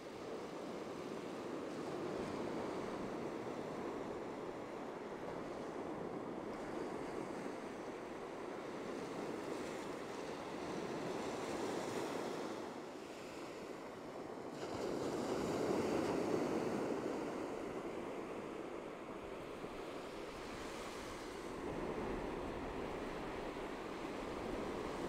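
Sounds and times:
ocean surf breaking: 0:15.1 - 0:25.0.

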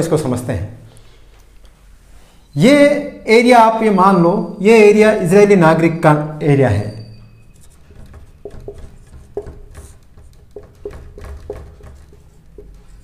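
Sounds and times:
marker pen on whiteboard: 0:06.9 - 0:13.0.

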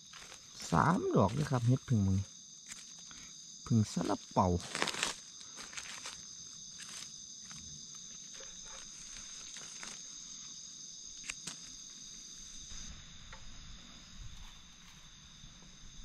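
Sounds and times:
night insects trilling: 0:00.0 - 0:16.0
dry leaves crackling and rustling: 0:04.4 - 0:07.6, 0:08.8 - 0:10.2.

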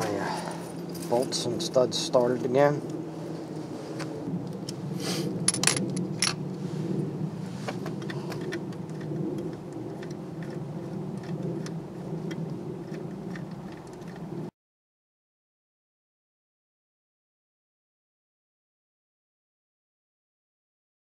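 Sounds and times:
steady low hum: 0:00.0 - 0:14.5.

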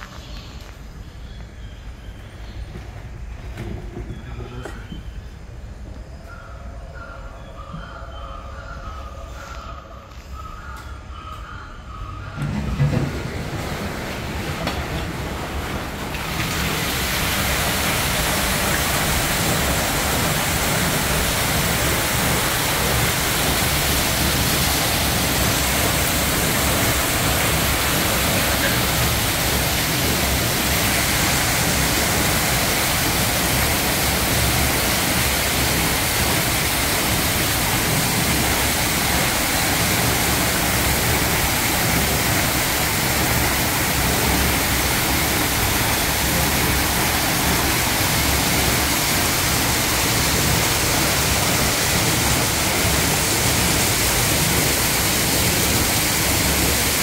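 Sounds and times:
water pouring into pool: 0:13.1 - 0:57.0.

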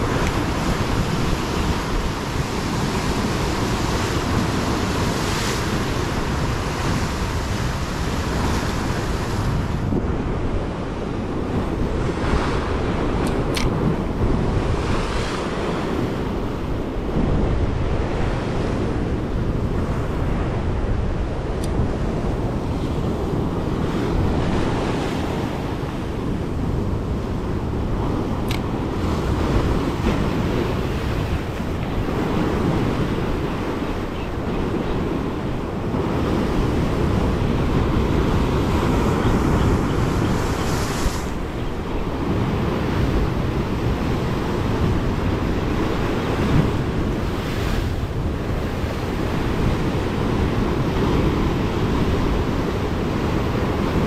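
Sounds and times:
waves breaking on rocks: 0:00.0 - 0:18.9
wind buffeting microphone: 0:00.0 - 0:54.0.

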